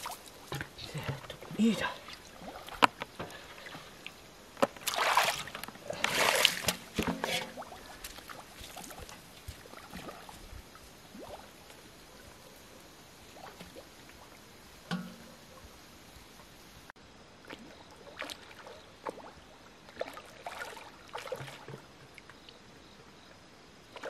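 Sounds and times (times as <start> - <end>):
water splashing from metal basin: 0.0 - 10.5, 17.5 - 21.8.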